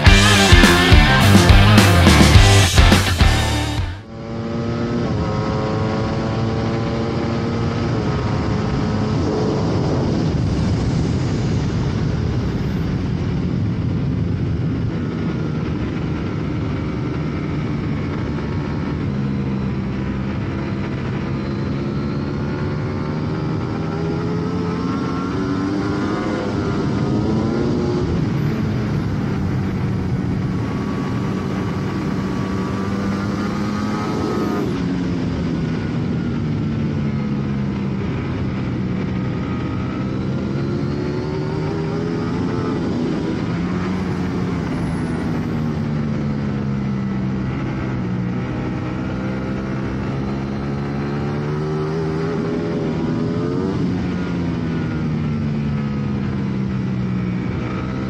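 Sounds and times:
motorcycle engine revving: 0:00.0 - 0:58.0
wind noise rushing: 0:07.5 - 0:18.4.

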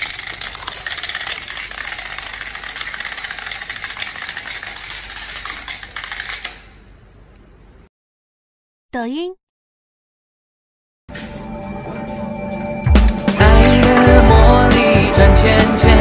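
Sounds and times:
plastic tiles toppling in a chain: 0:00.0 - 0:06.5.

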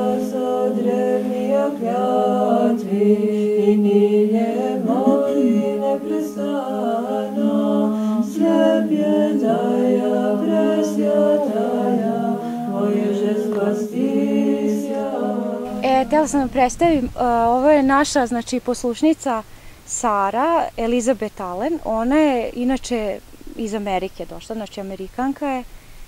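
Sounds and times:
women chanting a cappella hymn: 0:00.0 - 0:19.4.

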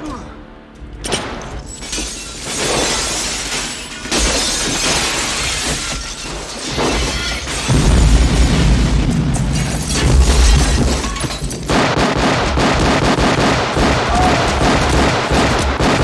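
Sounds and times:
window glass shattering: 0:01.6 - 0:08.4, 0:09.4 - 0:11.7
explosion with deep boom: 0:07.7 - 0:16.0.

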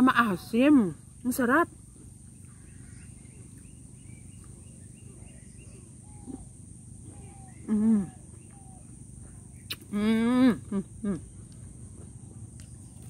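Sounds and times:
outdoor background noise: 0:00.0 - 0:13.0
faint bird chirps: 0:02.3 - 0:11.5
woman humming with mouth full: 0:07.5 - 0:08.3, 0:09.9 - 0:11.3.

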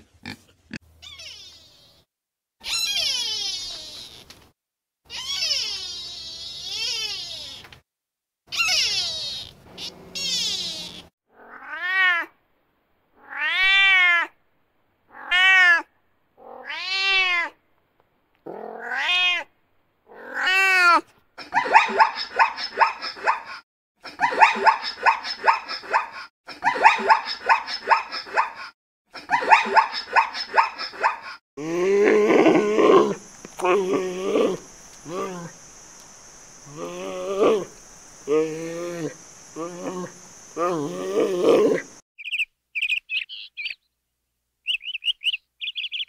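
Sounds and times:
cat meowing: 0:08.5 - 0:12.3, 0:13.2 - 0:14.3, 0:15.1 - 0:17.6, 0:18.6 - 0:19.5
zebra barking yelps: 0:21.6 - 0:23.5, 0:24.2 - 0:28.7, 0:29.3 - 0:31.3
low animal call: 0:31.6 - 0:35.6, 0:36.6 - 0:42.0.

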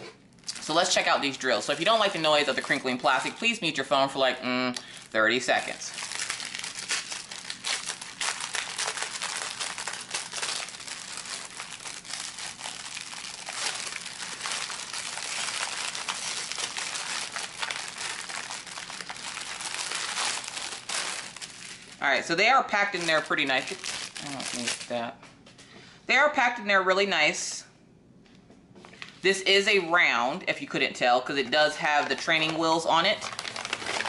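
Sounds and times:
plastic packaging crinkling: 0:00.4 - 0:03.8, 0:04.8 - 0:25.1, 0:31.4 - 0:34.0.

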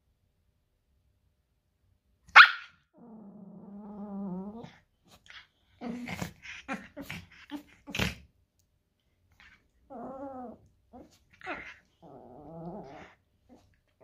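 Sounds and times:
dog yipping: 0:02.3 - 0:02.8
dogs growling: 0:02.9 - 0:08.3, 0:09.3 - 0:14.0.

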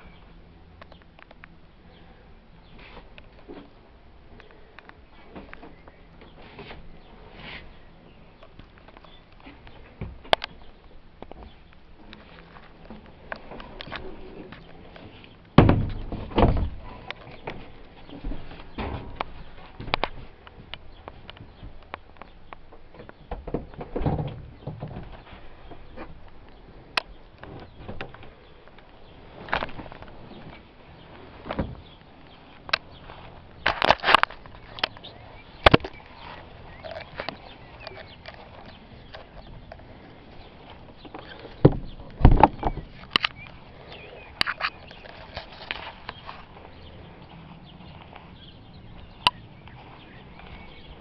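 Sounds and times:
knocks and creaks of movement: 0:00.0 - 0:51.0
sharp clicks: 0:42.1 - 0:46.4.

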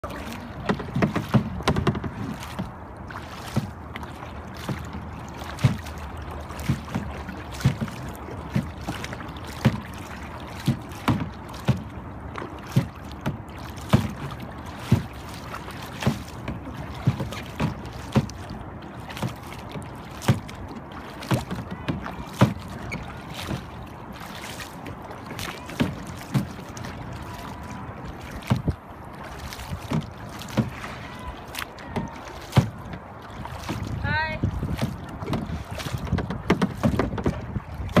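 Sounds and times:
paddle splashing into water: 0:00.0 - 0:38.0
steady wash of water: 0:00.0 - 0:38.0
sharp short knocks: 0:35.3 - 0:38.0.

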